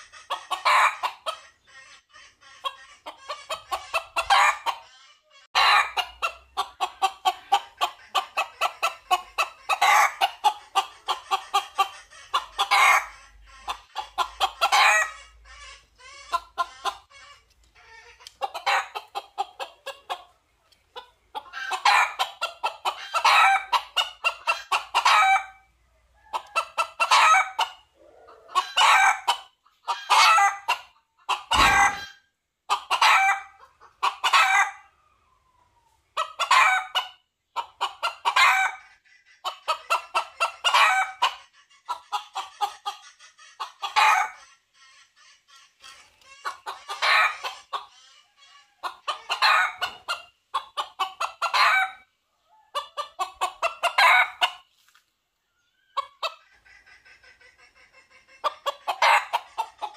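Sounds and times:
rooster crowing and clucking: 0:05.6 - 0:10.9, 0:21.4 - 0:32.2, 0:32.8 - 0:34.9, 0:36.2 - 0:37.2, 0:48.8 - 0:50.2, 0:50.8 - 0:52.0, 0:52.7 - 0:54.6, 0:58.4 - 0:59.9
dull thump: 0:31.6 - 0:32.0.

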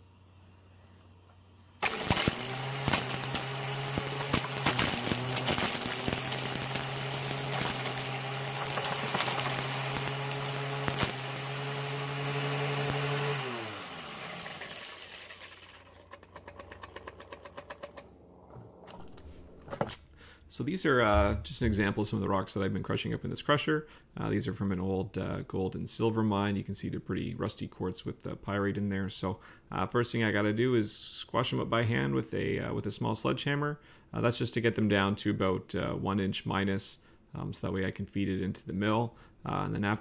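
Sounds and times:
angle grinder running: 0:01.8 - 0:18.0.

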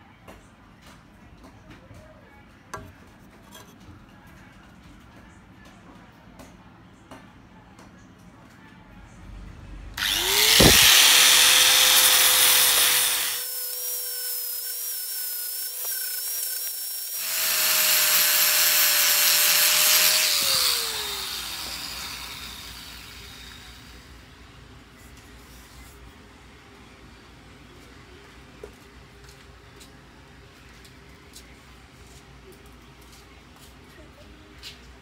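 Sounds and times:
sanding disc hissing on wood: 0:10.0 - 0:13.5
angle grinder motor whine: 0:10.0 - 0:24.0.

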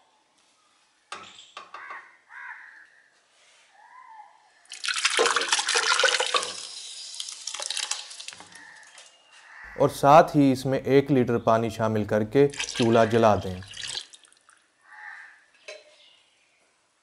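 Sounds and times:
liquid pouring into steel pot: 0:04.7 - 0:09.0, 0:12.4 - 0:14.7.

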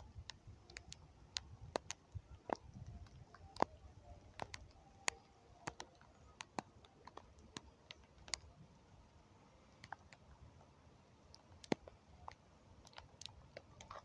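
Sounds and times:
sharp clicks and ticks: 0:00.2 - 0:08.5, 0:11.3 - 0:14.0.

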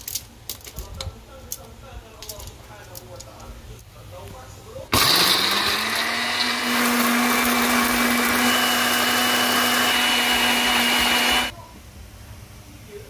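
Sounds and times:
blender grinding: 0:04.9 - 0:11.5.

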